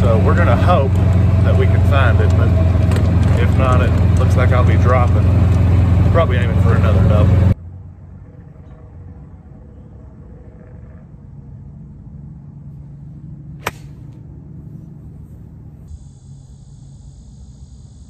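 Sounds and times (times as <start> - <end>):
golf club striking ball: 13.6 - 14.3
high insect hum: 15.4 - 18.0.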